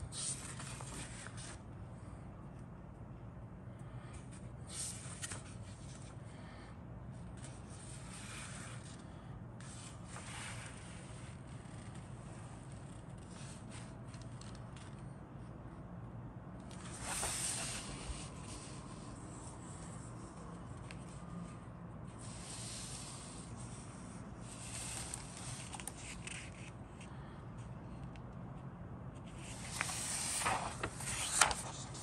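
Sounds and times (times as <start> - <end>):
booklet pages turning: 0.1 - 1.6, 4.7 - 6.2, 16.6 - 21.2, 24.5 - 27.1, 29.2 - 32.0
paper crinkling: 29.4 - 32.0.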